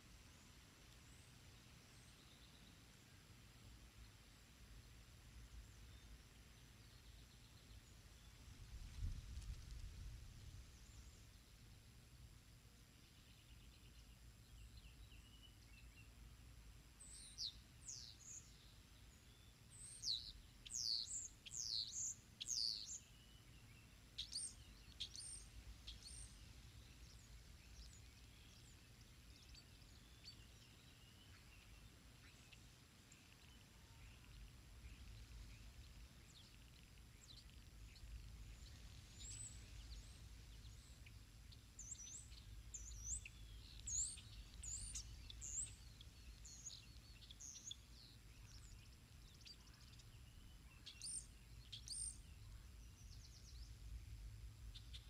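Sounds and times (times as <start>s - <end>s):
songbird chirping: 0.0s - 55.0s
wind rumble on microphone: 8.3s - 11.2s.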